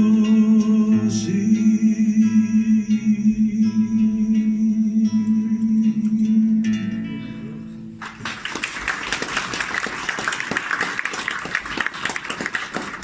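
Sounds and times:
audience applause: 0:08.0 - 0:13.0.

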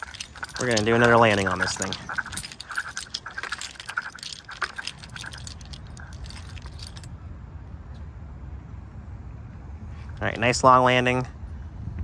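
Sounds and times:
light metallic jangling and clicking: 0:00.0 - 0:07.1
wind rumble on microphone: 0:11.2 - 0:12.0.

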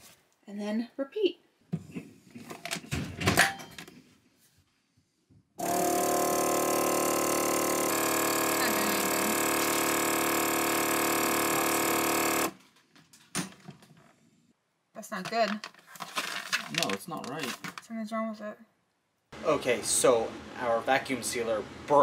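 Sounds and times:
vacuum sealer pump humming: 0:05.6 - 0:12.6.

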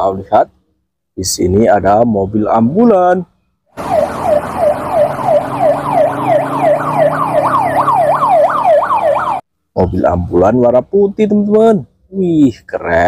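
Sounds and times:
ambulance siren yelping: 0:03.8 - 0:09.4.

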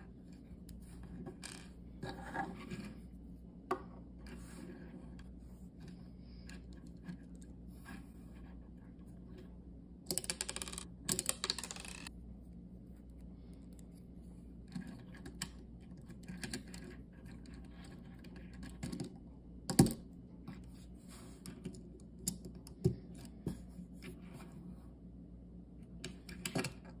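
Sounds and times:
plastic bricks clicking and rattling: 0:10.1 - 0:12.1.

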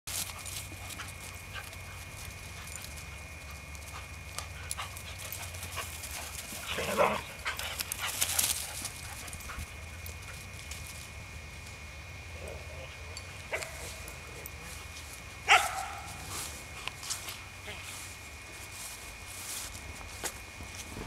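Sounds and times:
dog barking: 0:15.5 - 0:16.2.

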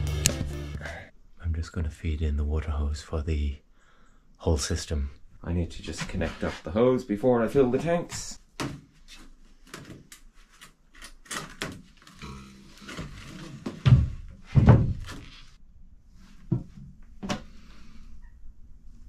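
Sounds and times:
plastic hose dragging under floorboards: 0:12.6 - 0:15.6
heavy thumps: 0:12.9 - 0:15.3.

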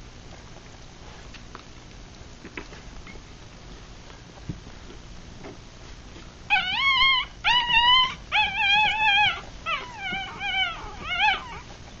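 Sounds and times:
puppies crying high-pitched: 0:06.5 - 0:11.7.

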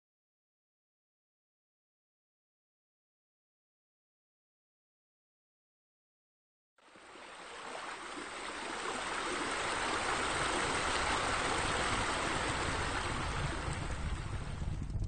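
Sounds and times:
running water rushing: 0:06.8 - 0:15.0.

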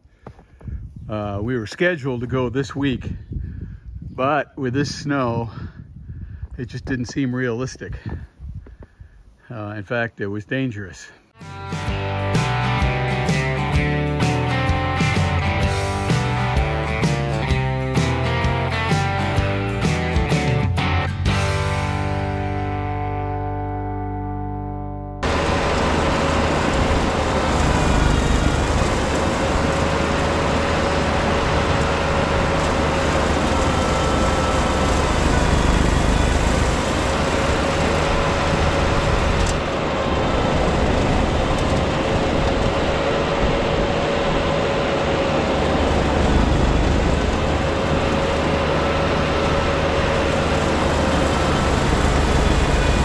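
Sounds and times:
tractor engine rumble with whine: 0:11.4 - 0:23.2, 0:25.2 - 0:53.0.

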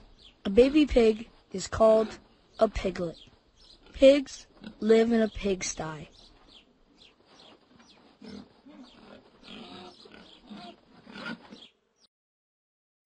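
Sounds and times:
pigs grunting: 0:03.8 - 0:04.9, 0:08.2 - 0:11.7.

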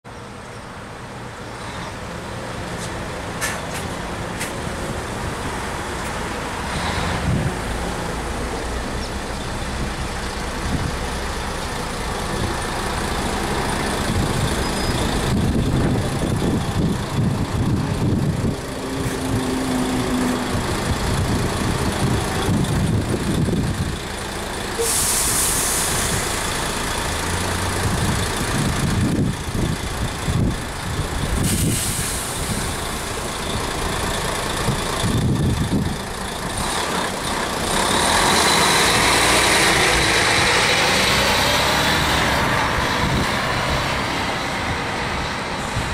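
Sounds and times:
bus engine rumbling: 0:00.1 - 0:45.9
air brake hiss: 0:24.8 - 0:26.4, 0:31.4 - 0:32.8.

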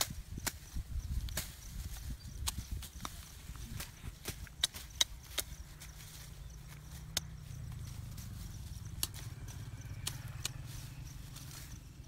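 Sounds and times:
brush stems cracking: 0:00.0 - 0:11.8
low rumble: 0:05.6 - 0:12.0.

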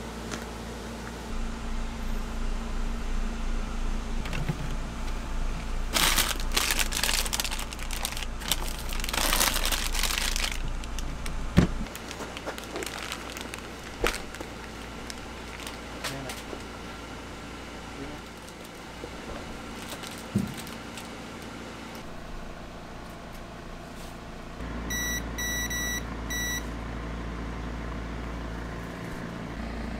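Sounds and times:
fridge-freezer hum: 0:00.0 - 0:29.9
plastic packaging crinkling: 0:05.9 - 0:16.8, 0:18.2 - 0:22.0.

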